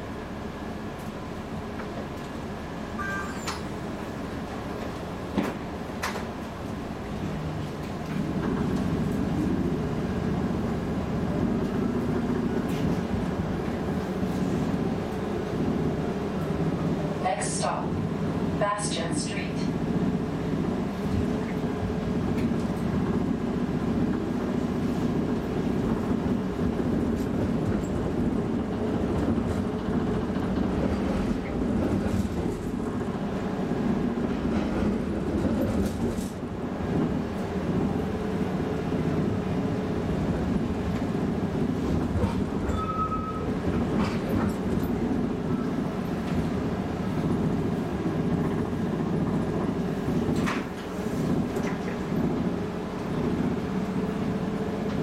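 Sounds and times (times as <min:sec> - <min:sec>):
streetcar wheels rumbling: 0:00.0 - 0:55.0
short high tone: 0:03.0 - 0:03.7.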